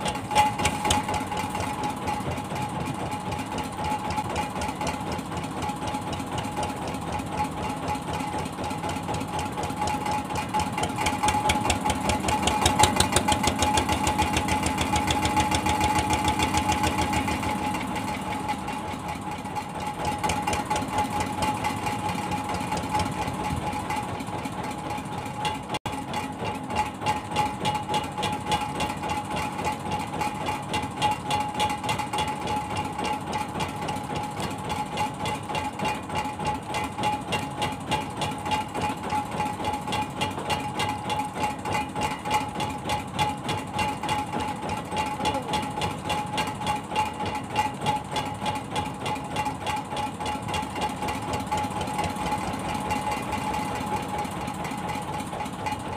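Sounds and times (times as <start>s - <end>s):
boat engine idling: 0.0s - 55.9s.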